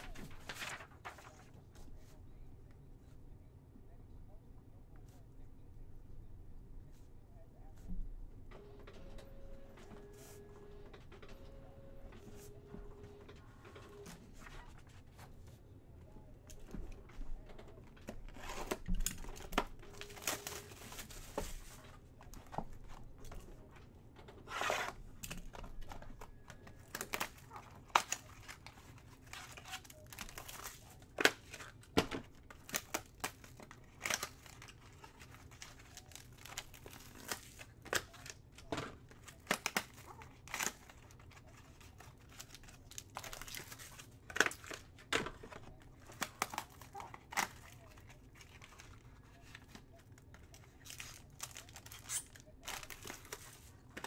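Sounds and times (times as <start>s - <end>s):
plastic shrink wrap crinkling: 0.0s - 1.5s, 16.6s - 23.5s, 24.6s - 54.0s.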